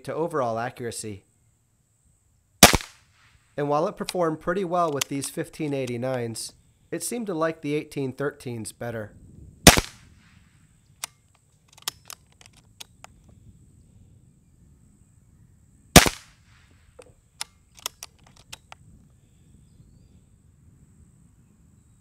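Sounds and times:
air pistol shot: 2.6 - 3.3, 9.7 - 10.1, 16.0 - 16.6
light clicks of pistol action: 4.8 - 6.0, 10.9 - 13.3, 17.0 - 18.8.

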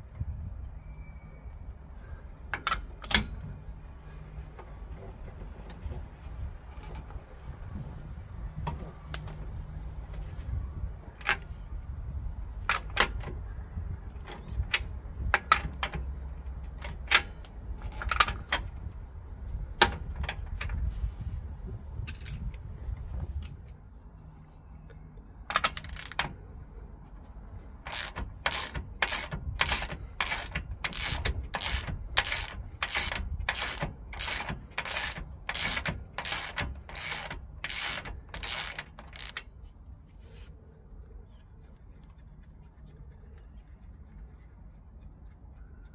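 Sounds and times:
low background rumble: 0.0 - 45.9
ratchet spanner clicking: 25.5 - 26.3, 27.8 - 39.5.

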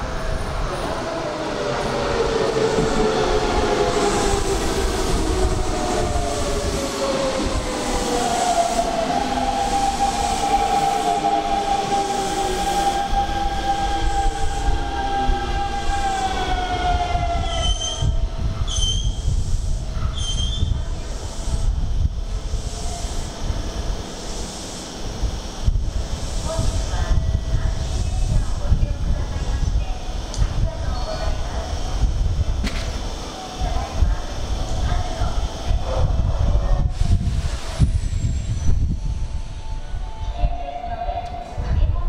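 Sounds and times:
train brakes squealing: 7.1 - 21.4, 37.6 - 41.6.

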